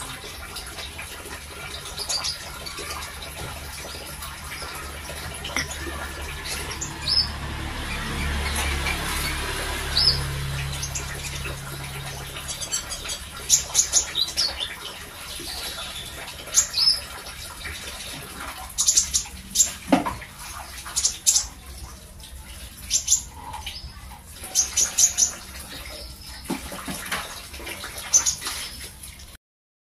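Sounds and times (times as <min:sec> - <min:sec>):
bird chirping: 0:05.5 - 0:14.9.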